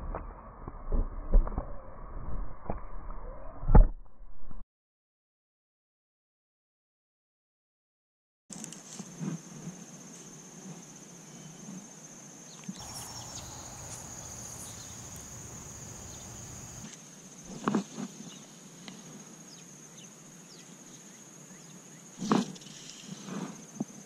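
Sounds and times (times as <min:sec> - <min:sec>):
insects droning: 0:09.0 - 0:24.0
low rumbling noise: 0:12.8 - 0:16.8.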